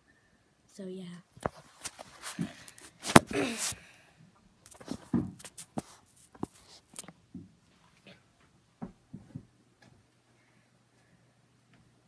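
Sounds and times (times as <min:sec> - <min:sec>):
rubbing scrape: 0:01.4 - 0:03.8, 0:04.7 - 0:07.0.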